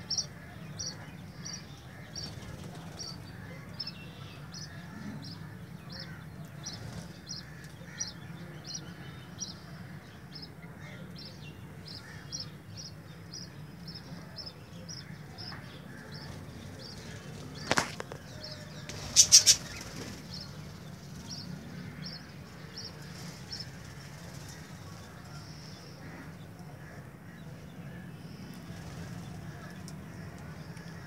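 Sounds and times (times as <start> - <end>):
loud sharp sounds: 16.4 - 22.1
budgerigars chirping: 18.5 - 20.6.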